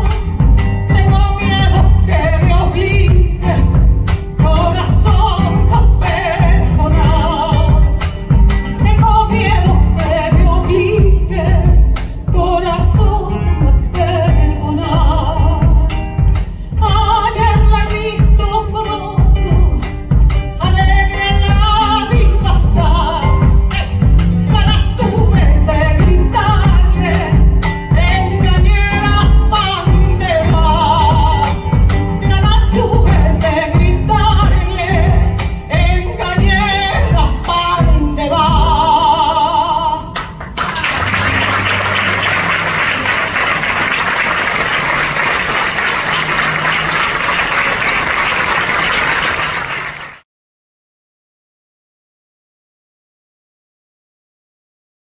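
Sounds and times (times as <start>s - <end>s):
woman singing folk song: 0.0s - 40.2s
acoustic guitar: 0.0s - 48.3s
audience applause: 40.4s - 50.2s.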